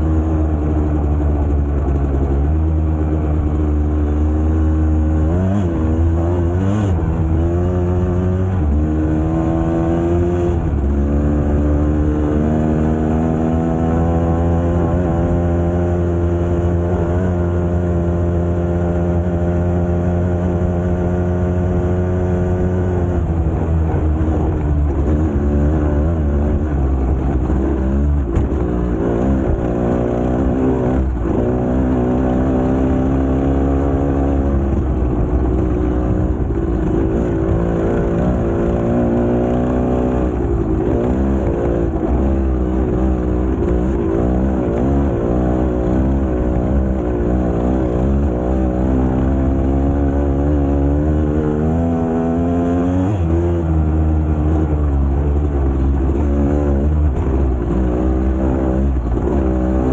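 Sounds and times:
two-stroke motorcycle engine revving: 0.0s - 59.9s.

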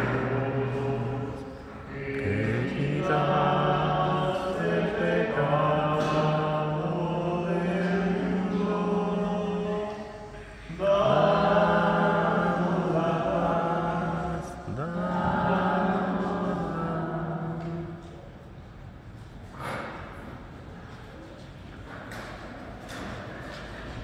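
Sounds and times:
slow liturgical chant: 0.0s - 20.4s.

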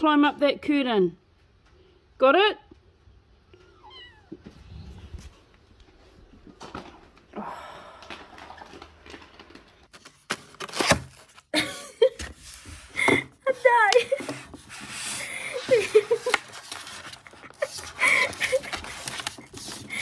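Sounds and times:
cat meowing: 3.6s - 4.4s
rustling: 12.4s - 20.0s.

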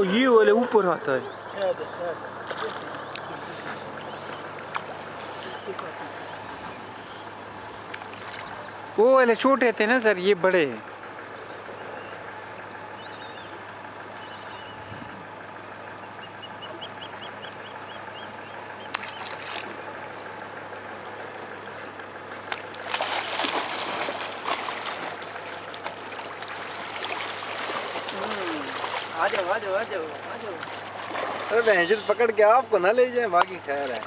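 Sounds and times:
outdoor background hiss: 0.0s - 34.0s
bird chirping: 1.1s - 9.4s, 11.2s - 15.2s, 15.8s - 19.4s
splash in water: 18.9s - 19.8s, 22.5s - 31.8s.

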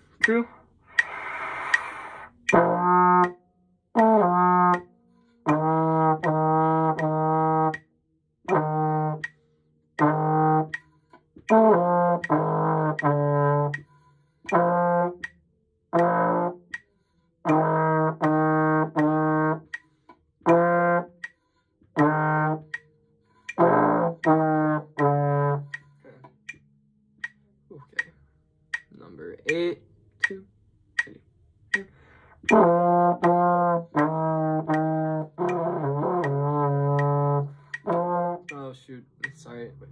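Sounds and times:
trombone playing low notes: 0.0s - 3.4s, 4.0s - 7.8s, 8.5s - 9.3s, 10.0s - 10.8s, 11.5s - 13.8s, 14.5s - 15.3s, 15.9s - 16.6s, 17.5s - 19.8s, 20.4s - 21.2s, 22.0s - 22.8s, 23.5s - 26.3s, 32.4s - 39.9s.

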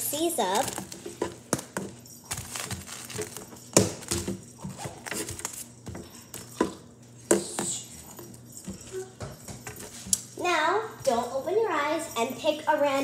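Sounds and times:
hair accessories rustling: 0.0s - 6.8s.

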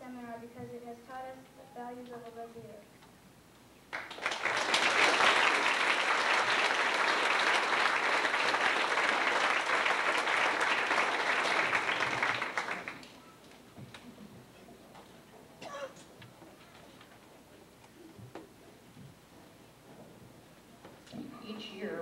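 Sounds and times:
audience applauding: 3.9s - 13.2s.

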